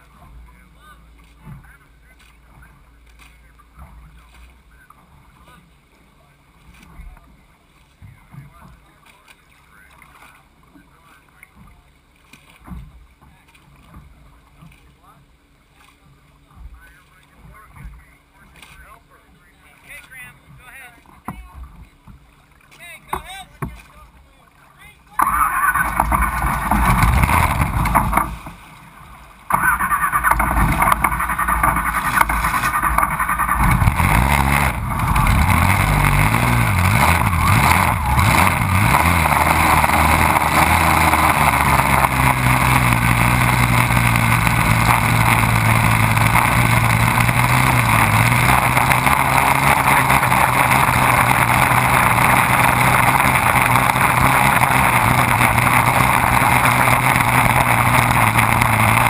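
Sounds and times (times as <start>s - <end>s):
race boat engine running hard: 24.4s - 59.0s
water spray rushing: 25.2s - 59.0s.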